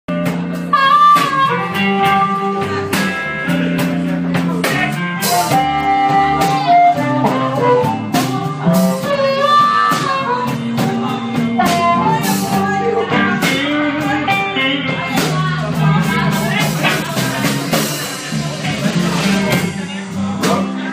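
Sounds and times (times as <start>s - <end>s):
bending lead guitar melody: 0.1s - 20.9s
live blues band playing: 0.1s - 20.9s.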